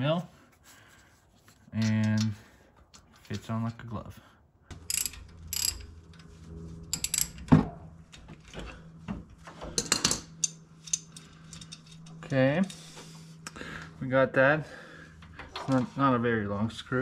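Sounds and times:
ratchet wrench clicking: 4.7s - 5.9s.

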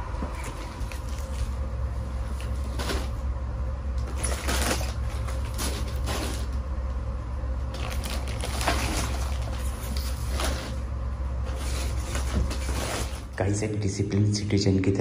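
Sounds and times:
steady low hum: 0.0s - 15.0s
plastic wrap rustling: 4.0s - 6.6s, 7.7s - 13.4s.

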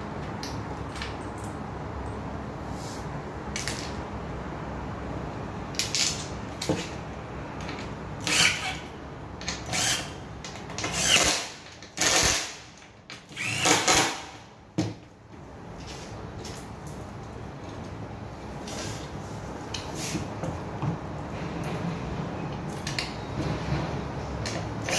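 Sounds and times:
cordless drill driving screws: 8.2s - 8.8s, 9.6s - 10.1s, 10.9s - 12.5s, 13.4s - 14.2s.

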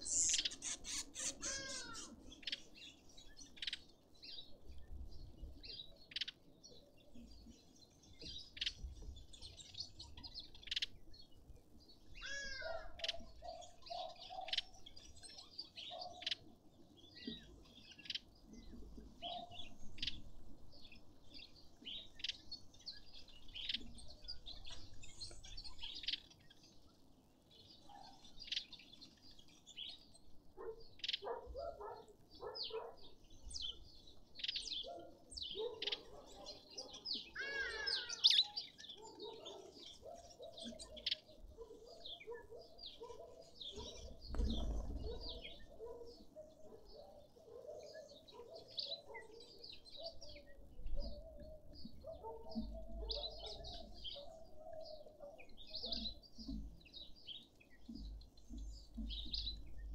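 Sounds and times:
low pulsed bird calls: 0.0s - 2.4s
birds chirping and whistling: 0.0s - 2.6s.

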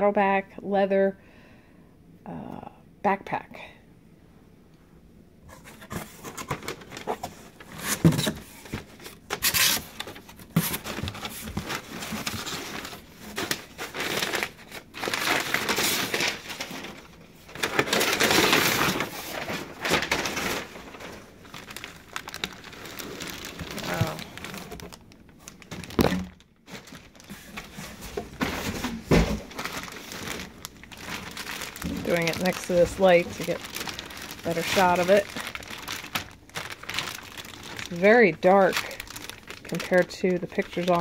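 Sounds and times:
packing paper crumpling: 5.5s - 41.0s
cardboard flaps handled: 25.8s - 30.4s.

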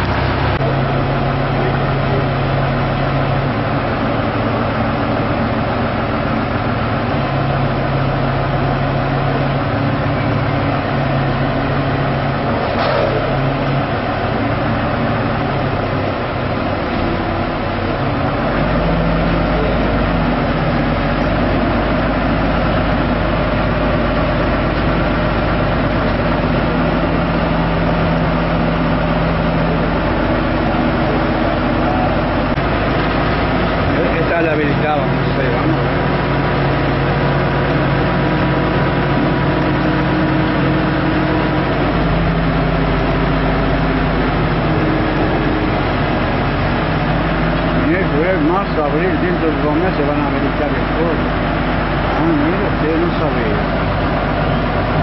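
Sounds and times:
road traffic noise: 0.0s - 55.0s
vehicle engine running: 0.0s - 55.0s.

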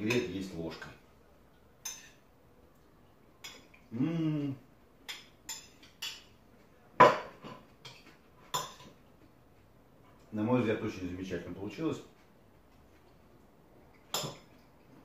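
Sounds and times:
man humming: 3.9s - 4.6s.

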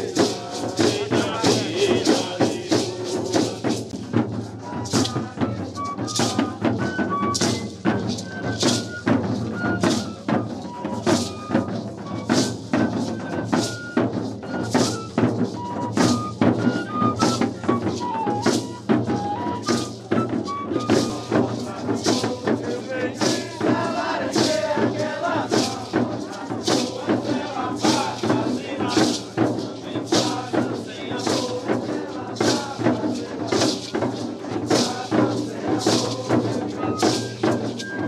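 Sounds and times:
hand rattles shaken: 0.0s - 6.6s, 19.8s - 38.0s.

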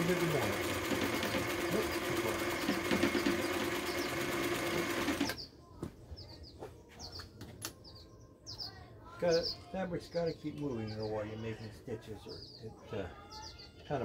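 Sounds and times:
sewing machine running fast: 0.0s - 5.4s
small birds chirping: 0.0s - 14.0s.

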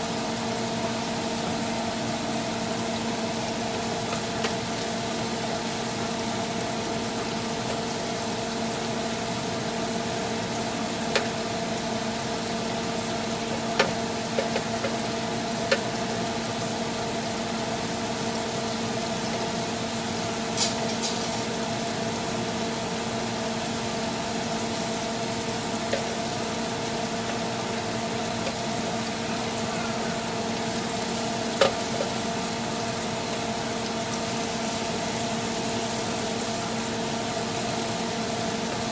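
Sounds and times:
shrimp sizzling in a pan: 0.0s - 38.9s
wooden spatula tapping a pan: 11.1s - 11.3s, 13.5s - 15.0s, 31.6s - 32.1s.

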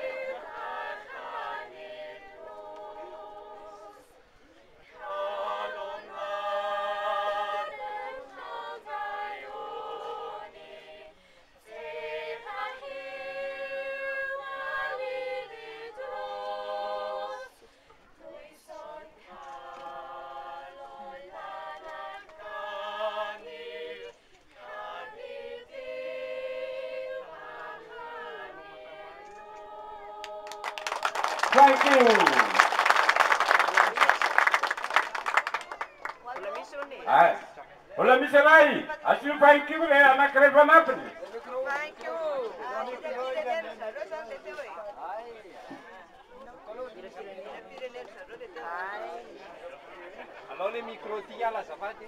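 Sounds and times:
group singing in harmony: 0.0s - 4.2s, 4.9s - 32.5s.

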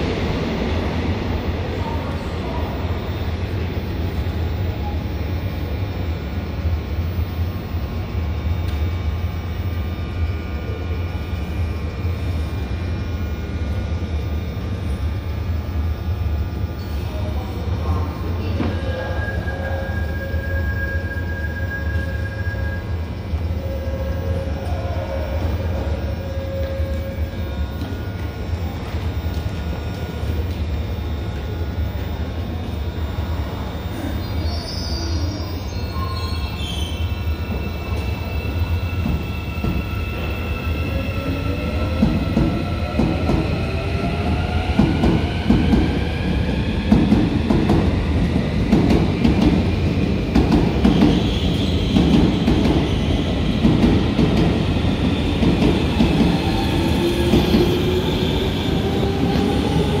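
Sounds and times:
clatter of train wheels: 41.8s - 58.0s.

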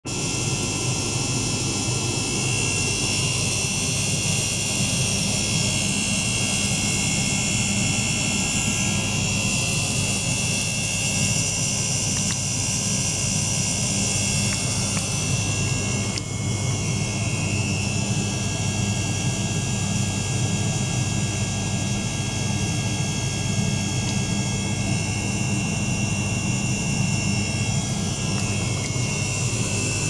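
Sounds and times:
water pump humming: 0.1s - 30.0s.

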